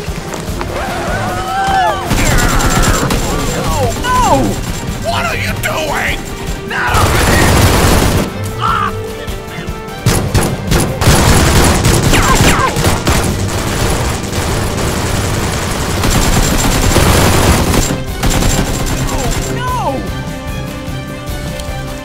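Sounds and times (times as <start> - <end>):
background music: 0.0 - 22.0
rapid gunfire volleys: 2.1 - 8.4, 10.0 - 19.9.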